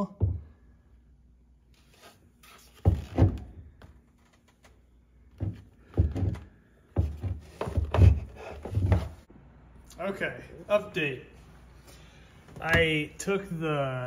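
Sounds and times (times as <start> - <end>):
plastic cover knocks and thuds: 5.3 - 9.2.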